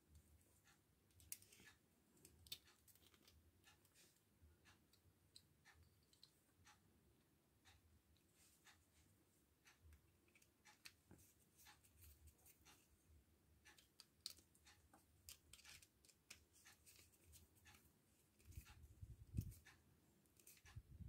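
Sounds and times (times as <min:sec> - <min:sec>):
screwdriver clicking and scraping on wire: 0:00.6 - 0:06.8, 0:09.6 - 0:12.9, 0:13.6 - 0:21.0.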